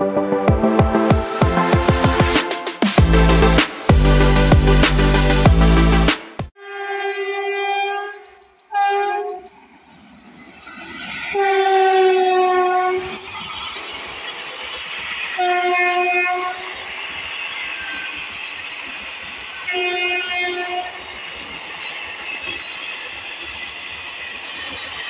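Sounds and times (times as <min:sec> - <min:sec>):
train air horn blasts: 0:06.6 - 0:09.5, 0:11.4 - 0:13.2, 0:15.4 - 0:16.7, 0:19.6 - 0:21.0
train wheels rolling on rails: 0:08.4 - 0:25.0.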